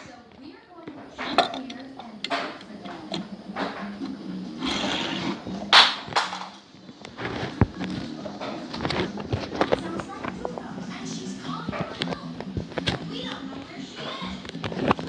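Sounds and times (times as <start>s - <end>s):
handling clicks and knocks: 0.3s - 10.7s.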